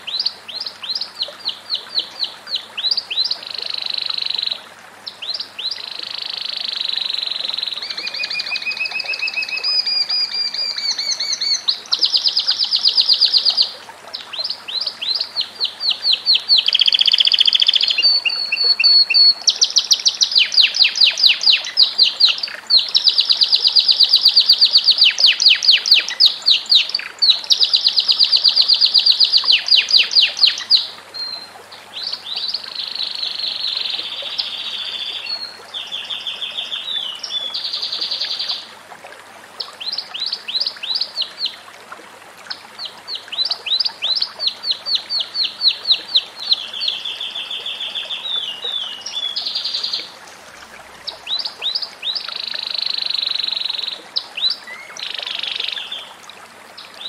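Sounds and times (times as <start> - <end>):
canary singing trills: 14.4 - 31.4.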